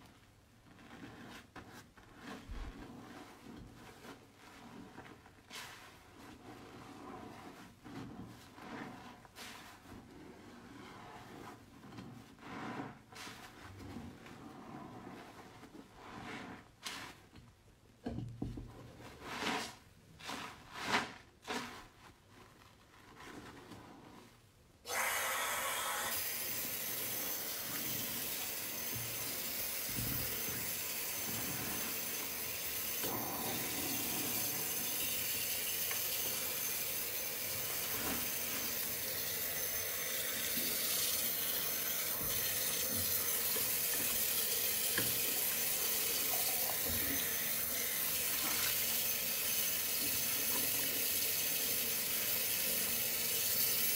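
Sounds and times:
hands squelching soap: 0:00.0 - 0:17.6, 0:26.2 - 0:51.0
tap water running into sink: 0:26.1 - 0:53.9.

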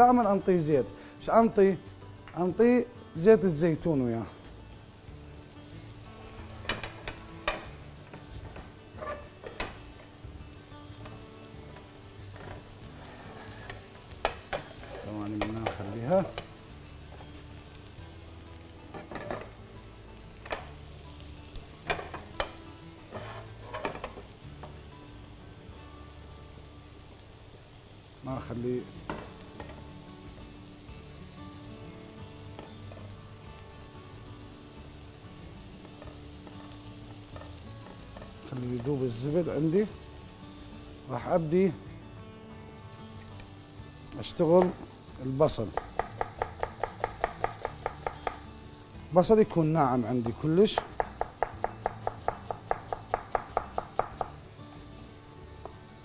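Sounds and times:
butter sizzling in a frying pan: 0:00.0 - 0:56.0
utensil scraping a pan: 0:09.0 - 0:09.7, 0:12.3 - 0:15.9, 0:23.1 - 0:24.2.

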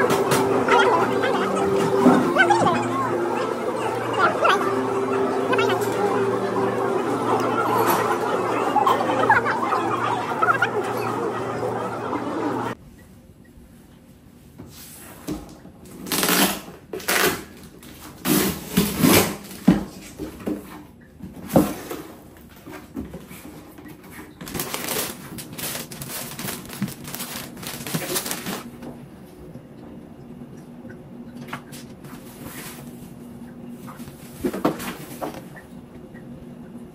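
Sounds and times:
packaging rustling and crinkling: 0:24.4 - 0:28.8.

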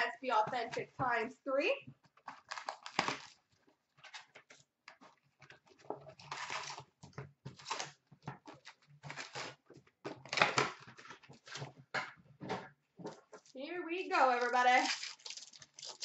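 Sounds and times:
plastic wrap crinkling and tearing: 0:02.2 - 0:05.2, 0:06.1 - 0:11.6, 0:14.1 - 0:16.0.

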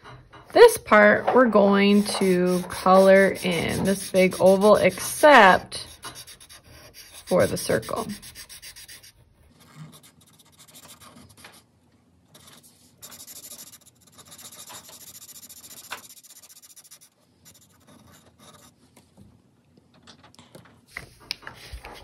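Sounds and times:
marker scribbling on paper: 0:00.6 - 0:11.6, 0:12.4 - 0:18.7.

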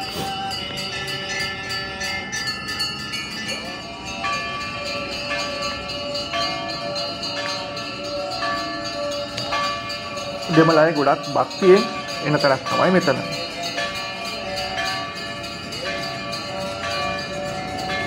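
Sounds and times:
bells ringing: 0:00.0 - 0:18.0
jingling beat: 0:00.0 - 0:18.0.

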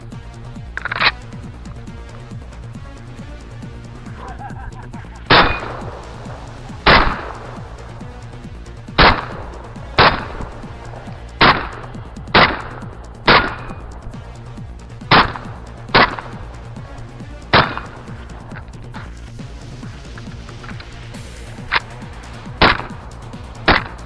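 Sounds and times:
shotgun shots: 0:05.3 - 0:07.6, 0:09.0 - 0:13.9, 0:15.1 - 0:16.4, 0:17.5 - 0:18.2, 0:22.6 - 0:23.0, 0:23.6 - 0:24.0.

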